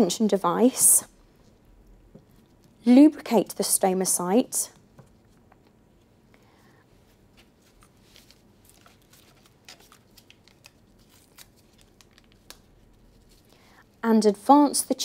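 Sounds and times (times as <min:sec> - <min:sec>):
gloved hands handling paper wrapper: 0:07.1 - 0:13.6.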